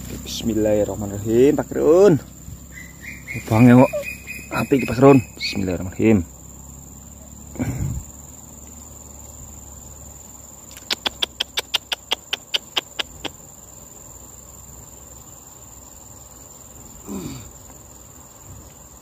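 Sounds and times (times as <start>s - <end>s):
high-pitched insect trill: 0.0s - 19.0s
sharp clicks: 10.7s - 13.4s.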